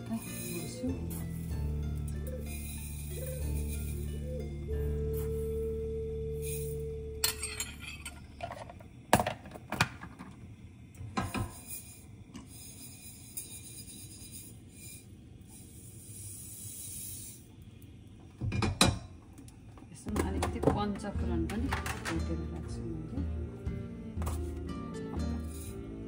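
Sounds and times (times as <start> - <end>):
background music: 0.0 - 7.4, 20.1 - 26.0
dishes and utensils clinking: 6.4 - 8.8, 20.1 - 22.8.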